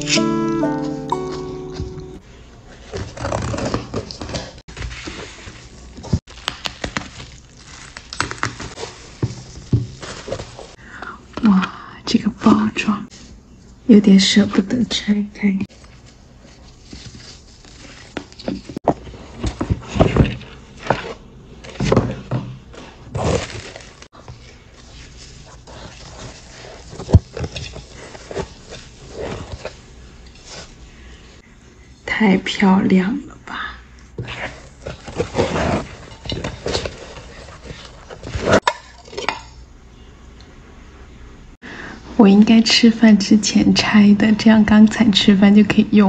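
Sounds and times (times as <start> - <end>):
tissue paper rustling: 2.6 - 10.8, 15.7 - 20.2, 23.1 - 30.7.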